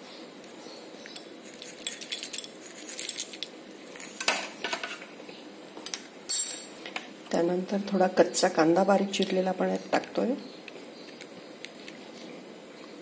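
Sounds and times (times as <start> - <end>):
crisp snack rustling into bowl: 1.4 - 4.2
crockery clinking: 5.8 - 6.8.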